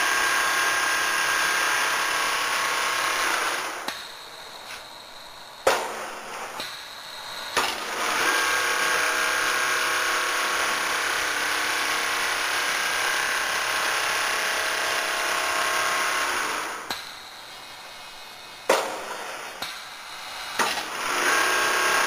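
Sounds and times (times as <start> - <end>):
quilting machine whirring: 5.9 - 18.0, 19.1 - 22.0.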